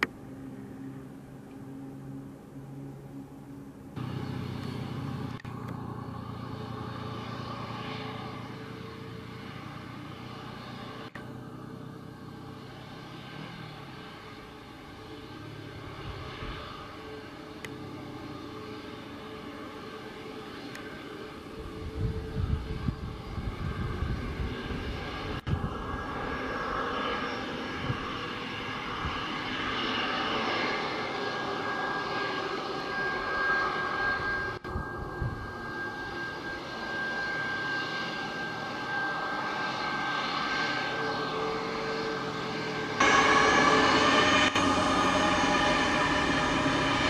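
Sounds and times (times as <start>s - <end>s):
jet engines whining: 0.0s - 47.0s.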